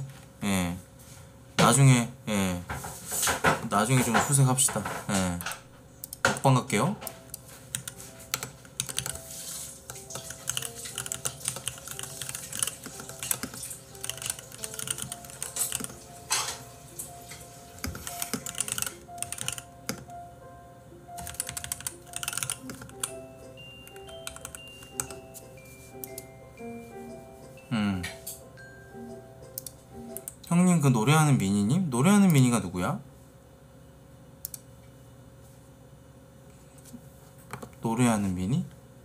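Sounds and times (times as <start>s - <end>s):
soft background music: 0.0s - 33.0s
keyboard typing clicks: 6.0s - 9.2s, 9.9s - 16.1s, 17.8s - 20.2s, 21.2s - 23.2s, 23.8s - 25.2s, 26.0s - 26.3s, 29.5s - 30.4s.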